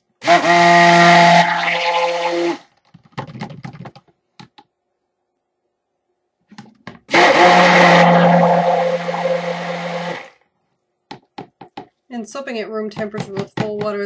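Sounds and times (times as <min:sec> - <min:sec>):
stick blender running: 0:00.2 - 0:02.6, 0:07.1 - 0:10.3.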